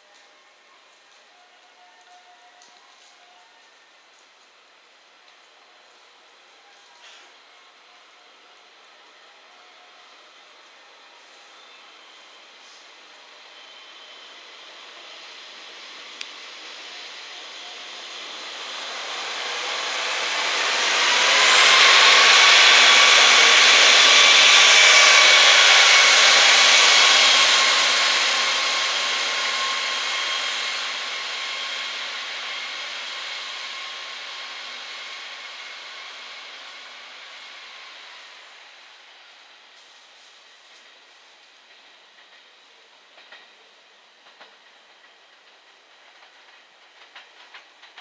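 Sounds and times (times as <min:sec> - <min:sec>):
diesel railcar passing: 0:00.0 - 0:48.0
high ringing tones: 0:02.2 - 0:18.6.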